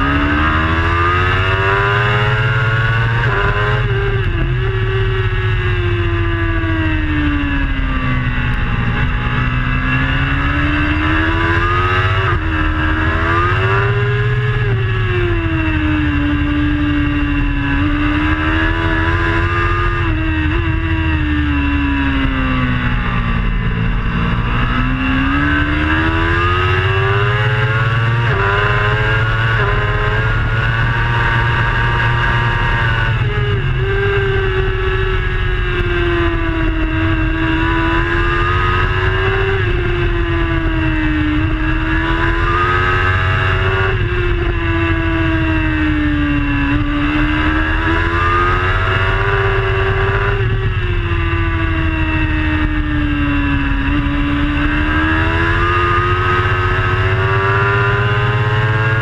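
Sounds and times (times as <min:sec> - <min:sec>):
superbike engine revving: 0:00.0 - 0:59.0
steady low rush: 0:04.1 - 0:11.4, 0:16.0 - 0:26.3.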